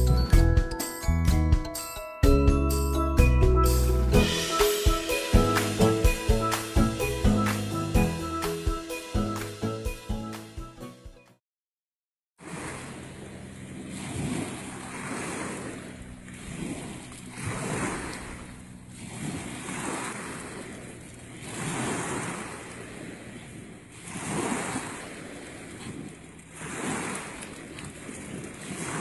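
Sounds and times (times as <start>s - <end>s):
small waves washing onto shore: 12.4s - 29.0s.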